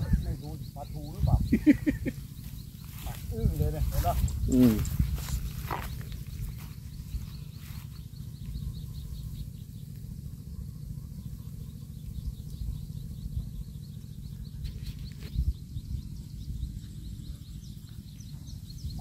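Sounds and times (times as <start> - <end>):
high rhythmic chirping: 0.0 - 9.8
wind rumbling on microphone: 0.0 - 19.0.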